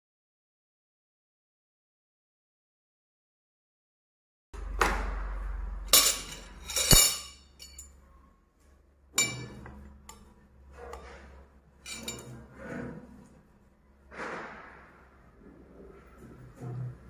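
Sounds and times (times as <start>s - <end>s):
cutlery clinking on dishes: 5.9s - 8.0s, 9.2s - 11.2s, 11.8s - 12.3s.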